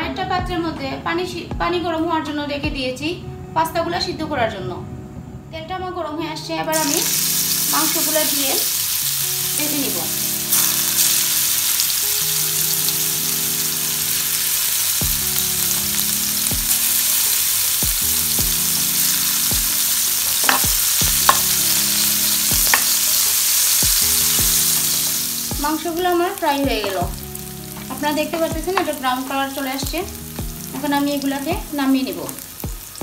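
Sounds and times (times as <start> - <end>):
chicken sizzling in hot oil: 6.8 - 33.0.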